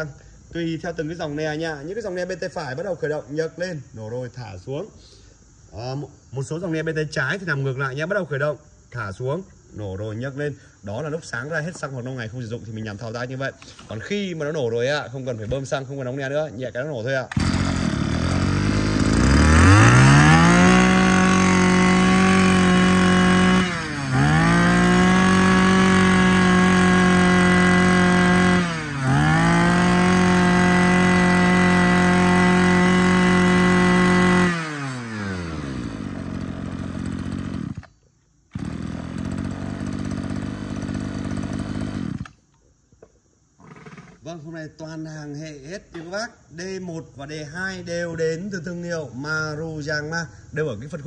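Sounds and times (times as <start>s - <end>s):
brush cutter engine revving: 17.3s - 42.4s, 43.6s - 44.3s.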